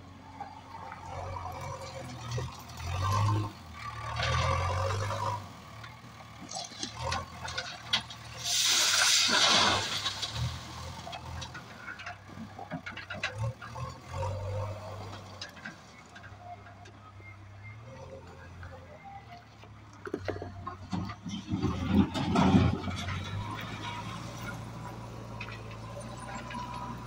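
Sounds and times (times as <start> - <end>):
diesel engine revving: 0.1 - 27.0
stones pouring into metal wagon: 6.5 - 12.0.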